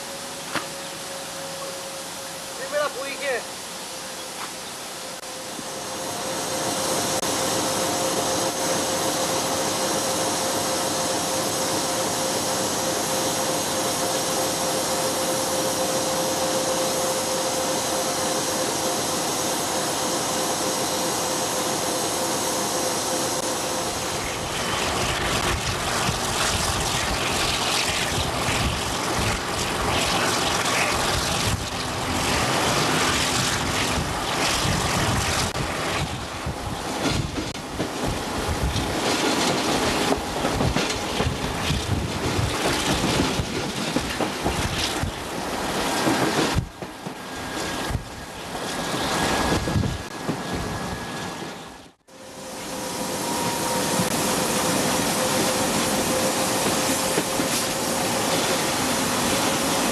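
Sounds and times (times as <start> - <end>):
train hissing roar with whine: 0.0 - 59.9
train rumbling and clattering: 4.4 - 52.0, 52.6 - 59.9
wind on microphone: 24.4 - 32.4, 33.1 - 39.0, 40.4 - 43.6, 49.2 - 50.8.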